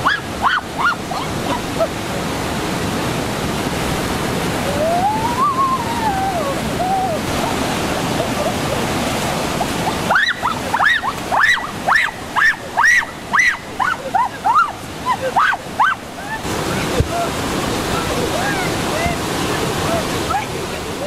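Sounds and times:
stream rushing over rocks: 0.0 - 21.0
whistled calls: 4.8 - 7.2, 10.1 - 14.8.

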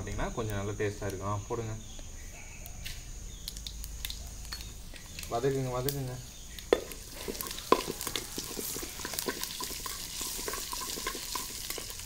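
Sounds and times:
seeds sizzling in hot oil: 0.0 - 12.0
sharp clicks: 2.6 - 6.7
metal spoon stirring: 6.7 - 12.0.

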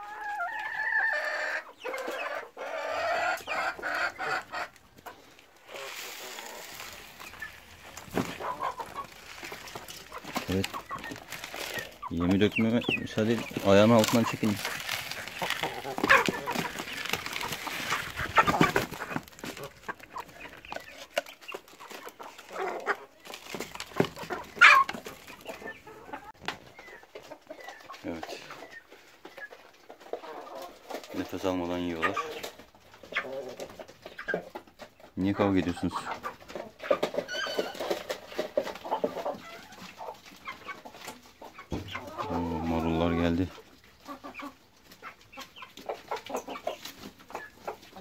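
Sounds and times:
chicken squawk: 0.0 - 12.2, 24.2 - 26.3
chickens clucking: 0.0 - 48.0
grain feed rattling into trough: 5.6 - 26.6, 35.4 - 40.0.

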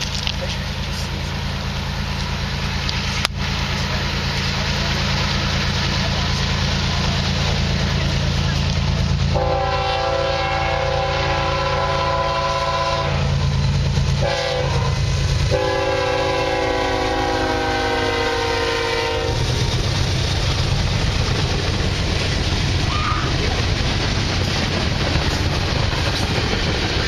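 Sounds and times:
diesel engine rumbling: 0.0 - 27.0
freight cars rolling past: 0.0 - 27.0
locomotive air horn blasts: 9.3 - 13.4, 14.2 - 19.4.

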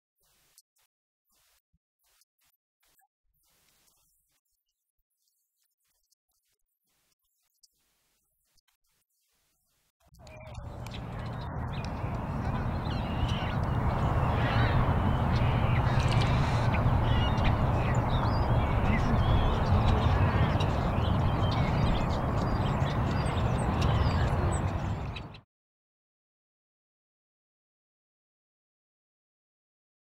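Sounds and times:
birds calling: 10.2 - 25.4
steady rumbling background: 10.2 - 25.4.

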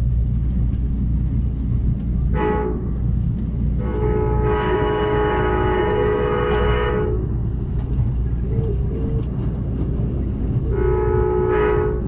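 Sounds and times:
train cars rumbling on rails: 0.0 - 12.0
train horn blasts: 2.3 - 3.0, 3.8 - 7.4, 10.7 - 12.0.

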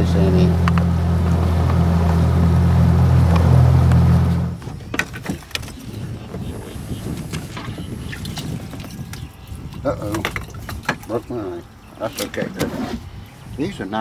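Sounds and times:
outboard motor running: 0.0 - 4.8.

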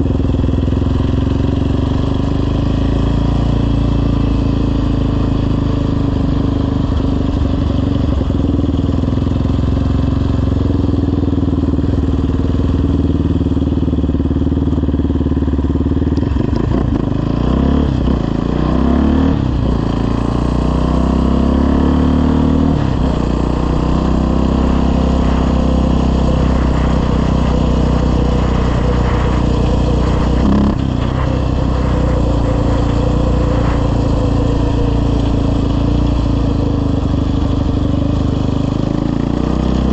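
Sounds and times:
quad bike engine revving: 0.0 - 39.9.

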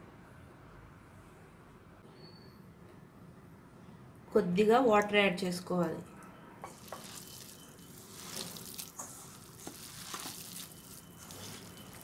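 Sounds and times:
hand squelching wet mixture: 6.7 - 12.0.

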